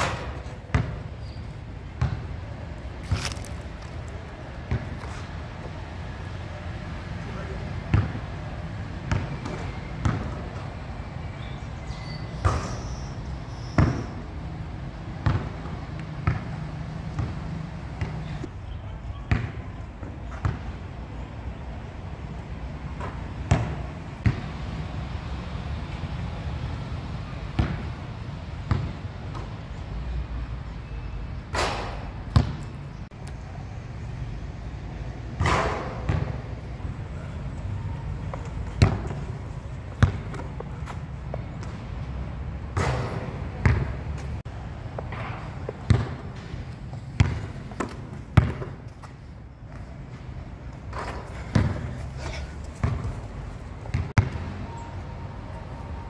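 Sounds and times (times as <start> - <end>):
basketball bouncing on court: 0.0 - 1.1, 1.9 - 2.3, 4.6 - 5.2, 7.9 - 8.2, 9.0 - 10.6, 13.8 - 14.1, 15.2 - 18.4, 19.3 - 19.7, 23.0 - 24.5, 27.6 - 27.9, 28.7 - 29.5, 31.6 - 32.7, 35.4 - 36.5, 38.2 - 41.8, 42.7 - 44.3, 45.0 - 49.1, 50.9 - 52.0, 52.7 - 54.4.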